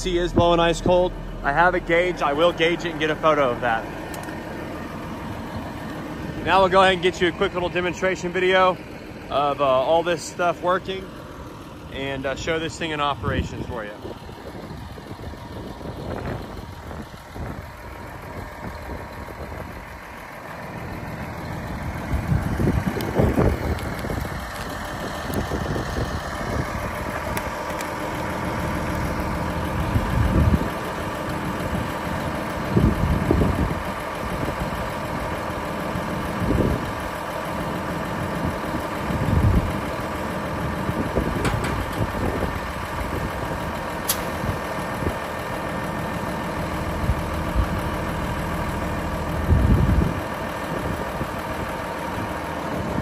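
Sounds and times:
diesel truck engine idling: 0.0 - 53.0
short low bumps: 41.0 - 43.4.

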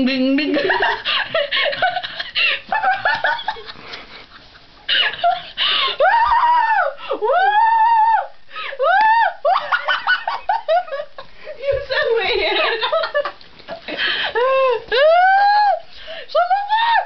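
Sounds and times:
young person laughing: 0.4 - 6.3.

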